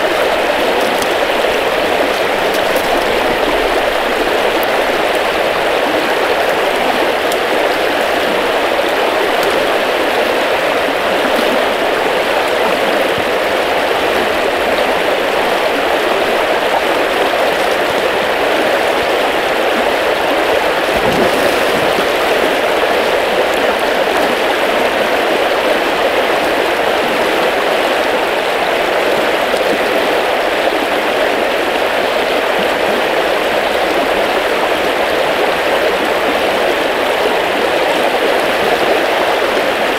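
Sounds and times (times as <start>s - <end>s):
fast-flowing river rushing: 0.0s - 39.9s.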